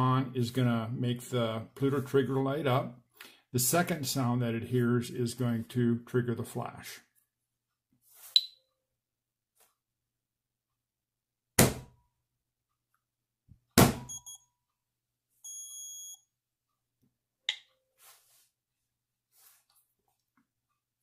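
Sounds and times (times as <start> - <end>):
short electronic beep: 14.0 - 14.5, 15.4 - 16.2
steady high beep: 14.0 - 14.5, 15.4 - 16.2.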